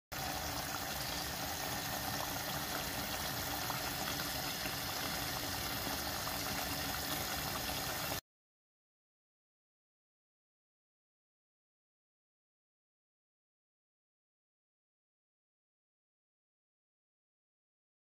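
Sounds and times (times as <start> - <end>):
curry bubbling in a pot: 0.1 - 8.2.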